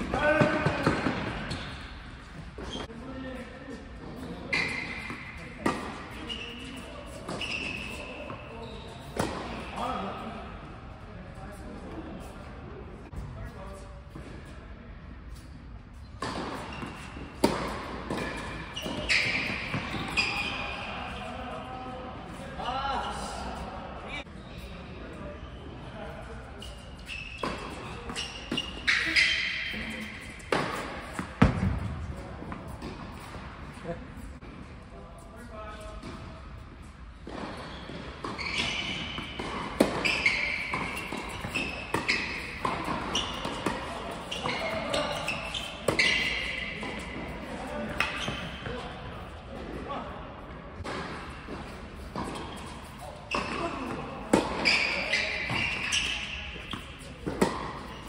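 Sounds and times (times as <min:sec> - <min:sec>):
shoe squeaks: 0:00.2 - 0:10.4, 0:15.3 - 0:23.5, 0:24.1 - 0:31.5, 0:35.3 - 0:49.4, 0:51.2 - 0:58.0
tennis ball bouncing on hard court: 0:04.5 - 0:06.0, 0:09.1 - 0:09.6, 0:16.2 - 0:20.2, 0:30.0 - 0:33.4, 0:37.2 - 0:47.3, 0:50.8 - 0:58.0.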